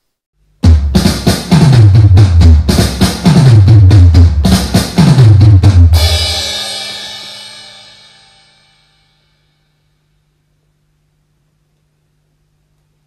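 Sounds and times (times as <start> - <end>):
fast drum hits: 0.6 - 8.6
cymbal crash: 5.9 - 9.7.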